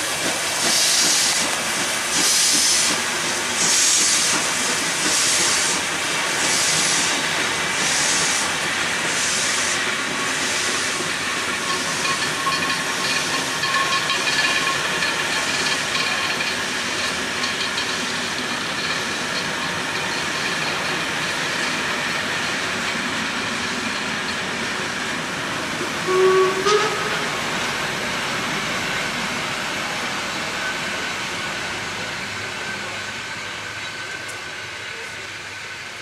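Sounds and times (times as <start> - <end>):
steam locomotive hissing: 0.0 - 36.0
steam whistle toots: 26.0 - 27.4.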